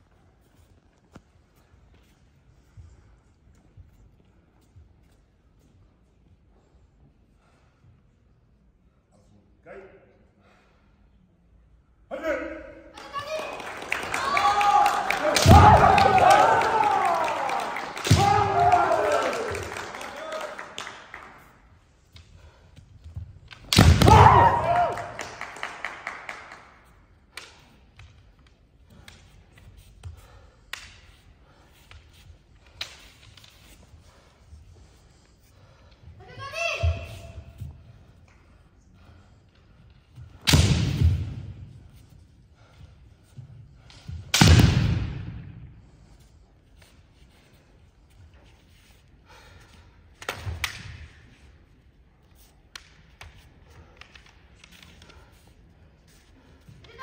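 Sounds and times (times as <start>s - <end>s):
bamboo swords clacking together: 22.1s - 24.4s, 27.2s - 34.0s, 50.0s - 51.6s, 52.2s - 55.6s
bamboo sword strikes: 23.6s - 24.6s, 40.4s - 41.5s, 44.3s - 45.4s.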